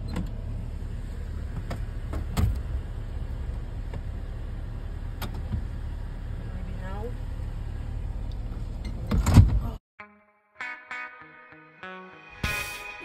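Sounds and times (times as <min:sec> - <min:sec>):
clunks of people entering car: 0:00.0 - 0:00.4, 0:01.5 - 0:02.8, 0:05.2 - 0:05.8, 0:08.4 - 0:09.8.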